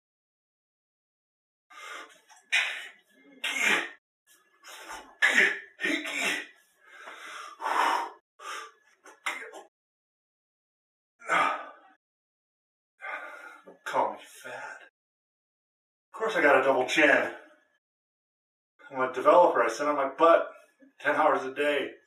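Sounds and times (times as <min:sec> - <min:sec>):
man huffing and puffing: 0:01.7 - 0:04.0, 0:04.6 - 0:09.7.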